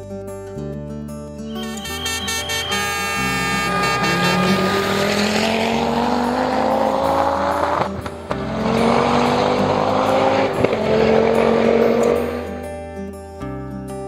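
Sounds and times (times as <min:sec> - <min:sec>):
rally car engine accelerating: 0:02.6 - 0:12.8.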